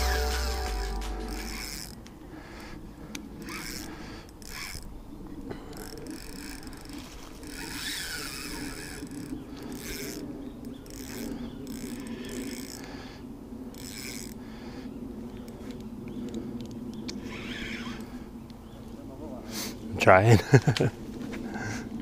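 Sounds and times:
fishing reel gears whirring: 0:00.0 - 0:02.0, 0:03.4 - 0:04.9, 0:05.7 - 0:13.1, 0:13.7 - 0:14.7, 0:17.2 - 0:18.3.

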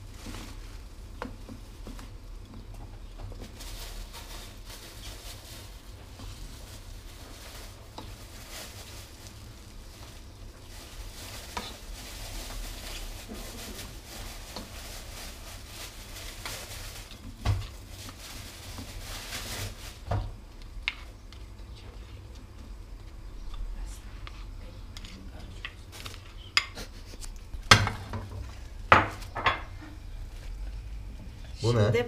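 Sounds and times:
food sizzling in a frying pan: 0:00.0 - 0:21.5.

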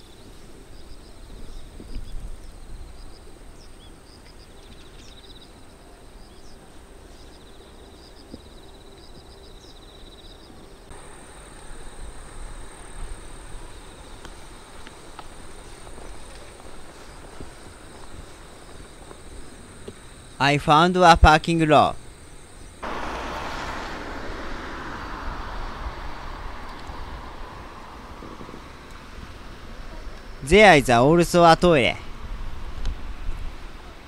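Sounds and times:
insect chirps: 0:00.0 - 0:31.7
low rumble: 0:22.8 - 0:28.9.

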